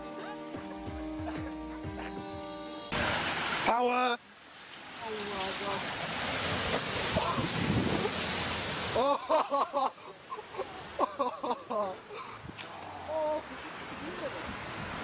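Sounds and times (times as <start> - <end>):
floodwater rushing: 2.9 - 15.0
wind on microphone: 7.0 - 8.5.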